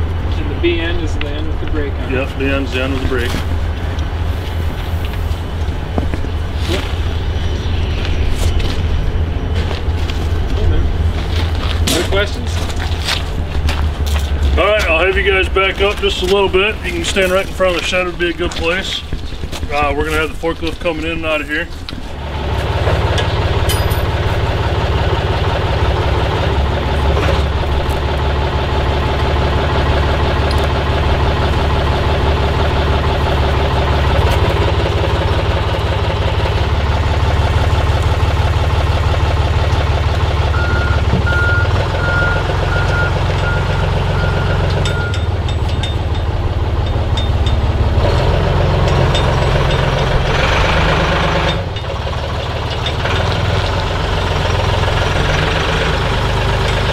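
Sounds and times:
heavy diesel engine running: 0.0 - 56.9
backup alarm beeping: 40.5 - 45.4.

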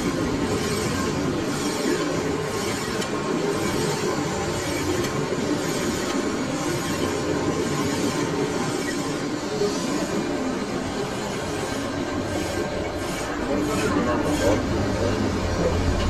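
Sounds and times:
metal lathe running: 0.0 - 16.0
tool scraping turning steel: 11.4 - 16.0.

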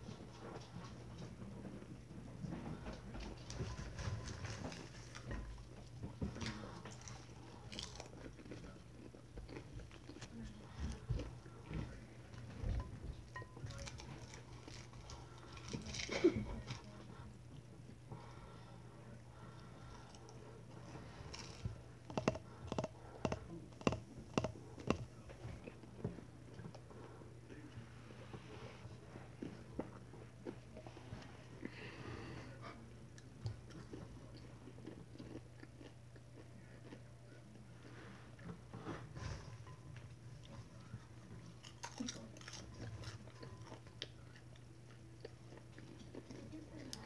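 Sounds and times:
popcorn crunching: 6.3 - 11.6, 21.2 - 25.8, 33.6 - 37.5, 41.4 - 47.0
fingers tapping glass bowl: 22.1 - 25.1.

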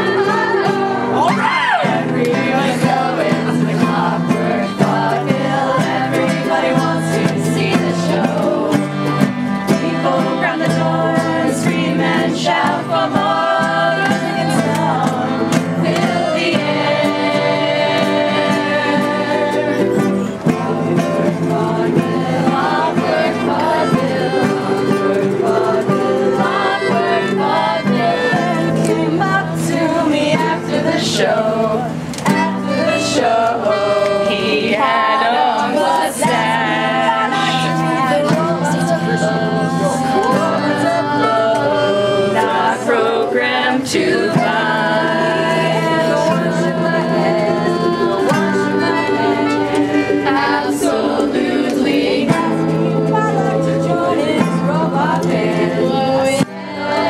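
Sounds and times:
group singing in unison: 0.0 - 57.0
strummed ukulele: 0.0 - 57.0.

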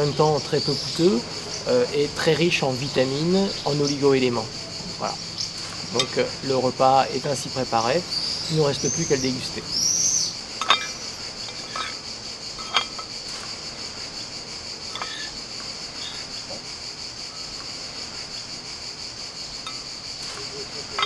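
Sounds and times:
insects chirring: 0.0 - 21.0
utensil clinking against bowl: 10.6 - 12.0, 12.6 - 13.1.

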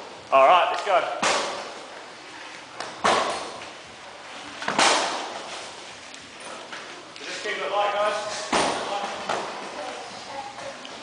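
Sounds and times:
kickboxing strikes smacking: 1.2 - 1.7, 3.0 - 3.6, 4.7 - 5.4, 8.5 - 9.4.

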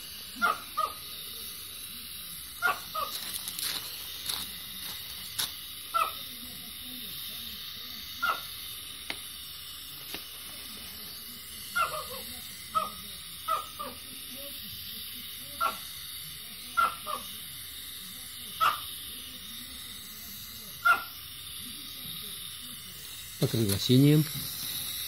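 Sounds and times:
gas spraying hiss: 0.0 - 25.0
sharp pops and spits: 3.0 - 5.6.

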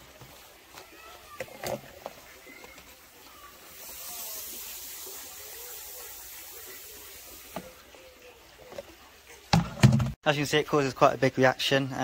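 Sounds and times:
metal fizzing in acid: 1.9 - 8.1.

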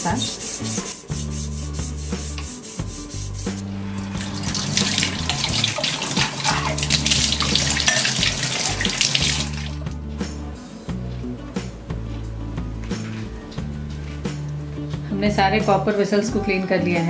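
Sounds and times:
soft background music: 0.0 - 17.0
tap water splashing off metal: 4.1 - 9.8.

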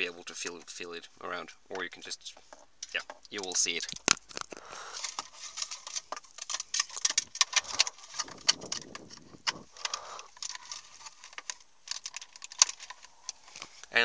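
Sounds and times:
rustling handling noise: 0.0 - 14.0
plastic connector clicking and rattling: 2.8 - 13.7.

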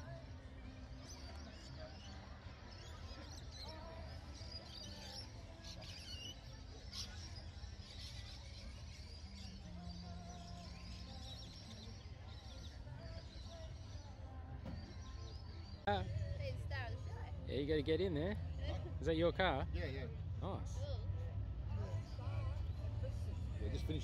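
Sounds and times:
birds chirping: 0.0 - 20.7
faint distant voices: 0.0 - 24.0.

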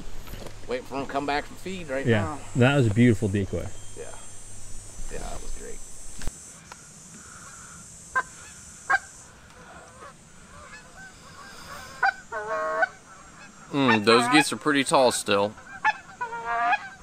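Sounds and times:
geese honking: 7.2 - 17.0.

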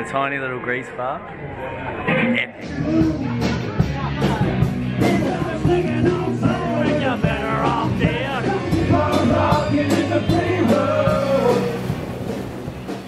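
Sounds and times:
rock band playing: 2.6 - 13.0
person singing: 2.7 - 12.0.

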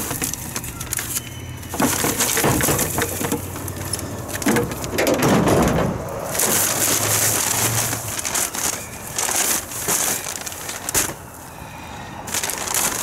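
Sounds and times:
paper bag rustling: 0.0 - 11.5, 12.2 - 13.0
dry grass pouring into bag: 6.2 - 11.5, 12.3 - 13.0.

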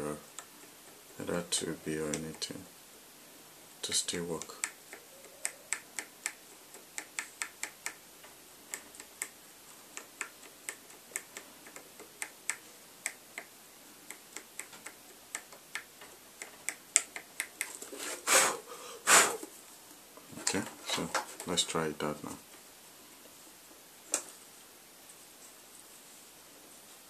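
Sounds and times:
pencil tapping on circuit board: 4.4 - 17.8.

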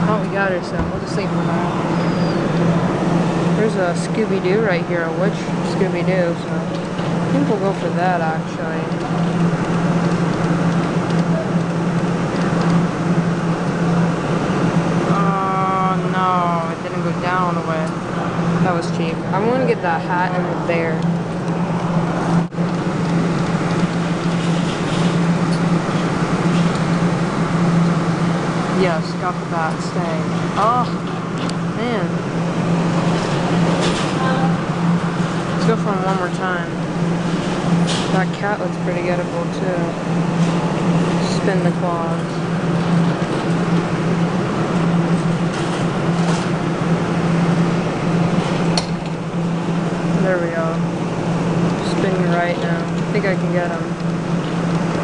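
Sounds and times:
claw machine humming: 0.0 - 55.0.

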